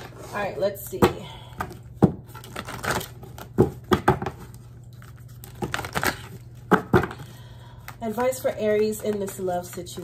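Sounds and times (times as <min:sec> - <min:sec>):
cards being shuffled: 0:01.6 - 0:07.2.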